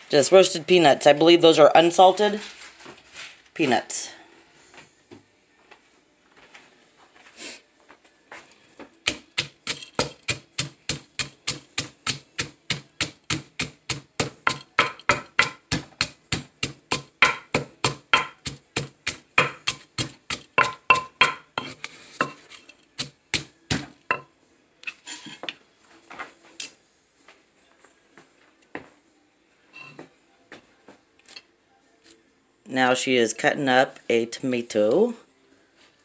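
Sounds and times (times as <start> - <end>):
wooden pestle pounding in mortar: 9.0 - 22.4, 23.0 - 24.2.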